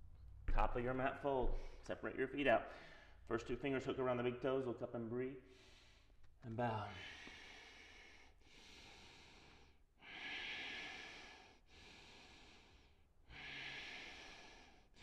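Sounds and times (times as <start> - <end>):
man breathing slowly: 2.7 - 3.3, 5.4 - 15.0.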